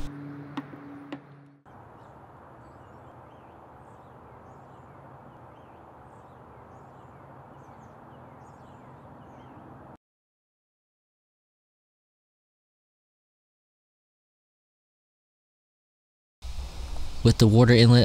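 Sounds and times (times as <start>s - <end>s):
low hum: 0.0s - 8.8s
background hiss: 16.4s - 18.0s.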